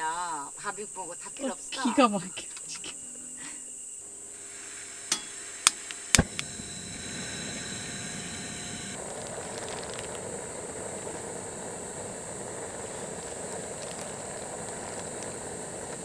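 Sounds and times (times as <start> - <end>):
gas flame hissing: 2.6 - 16.0
gas stove igniter clicks: 5.1 - 6.6.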